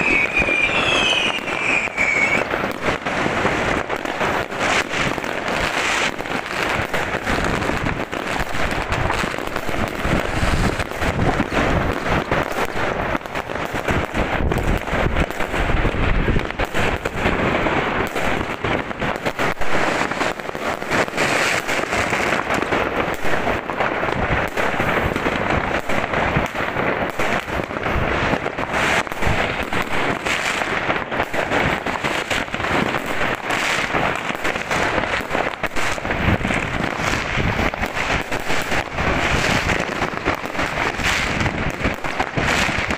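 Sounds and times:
fireworks crackling: 0.0 - 42.9
sharp firework bangs: 0.0 - 42.9.

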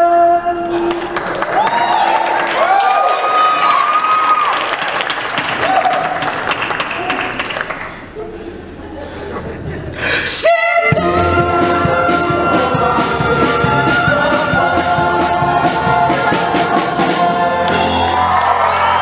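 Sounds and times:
audience applauding: 0.8 - 8.2, 16.1 - 19.0
singers and band holding a chord: 10.2 - 19.0.

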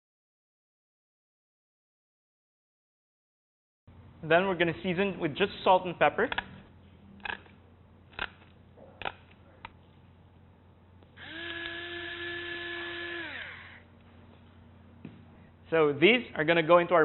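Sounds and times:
pepper grinder motor whirring: 11.2 - 13.9.

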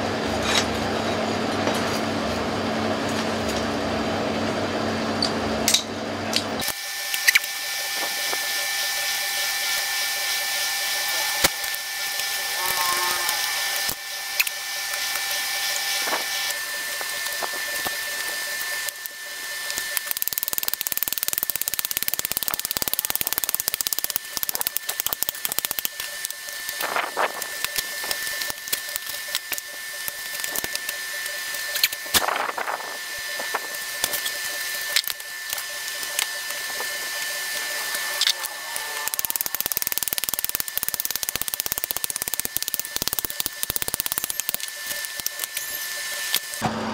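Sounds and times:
thin constant whine: 6.7 - 46.6
charcoal crackling and popping: 11.4 - 46.6.

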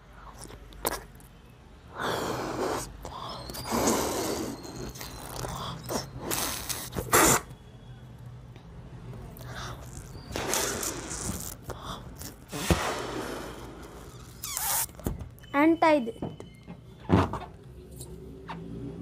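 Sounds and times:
person blowing up a balloon: 2.0 - 7.5, 9.7 - 15.0.

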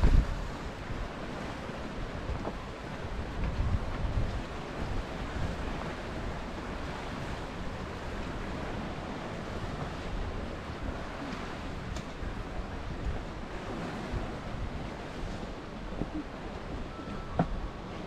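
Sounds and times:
sea surf on rocky shore: 0.0 - 18.0
wind rumble on microphone: 0.0 - 18.0.

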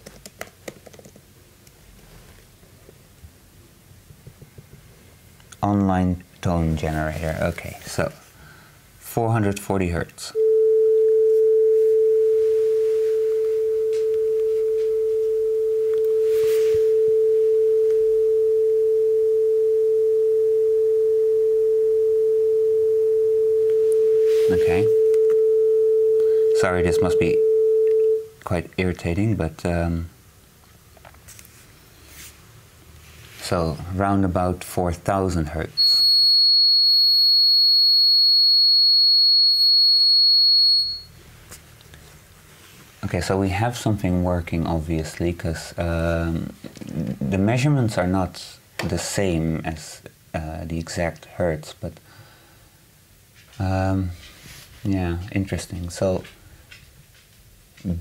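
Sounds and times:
steady sine tone: 10.4 - 28.2, 35.8 - 41.1.

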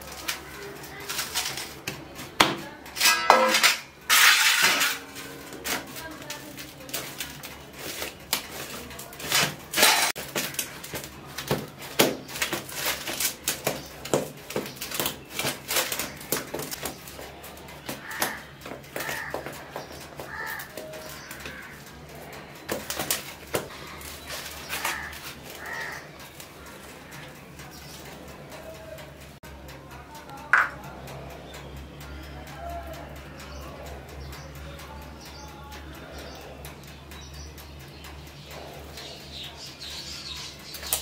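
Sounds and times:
hands patting dough in metal tray: 0.0 - 31.1.

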